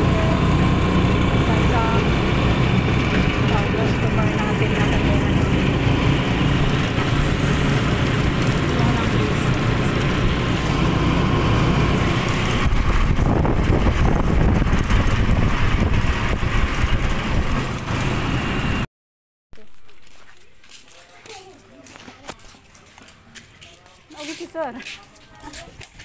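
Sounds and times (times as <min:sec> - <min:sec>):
vehicle engine and road noise: 0:00.0 - 0:18.9.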